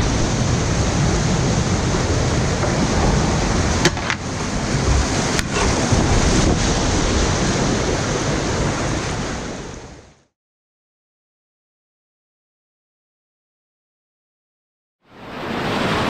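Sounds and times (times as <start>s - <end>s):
whitewater rushing and splashing: 0.0s - 10.0s, 15.2s - 16.0s
wind noise on microphone: 0.0s - 10.1s
sharp knocks: 3.8s - 6.3s.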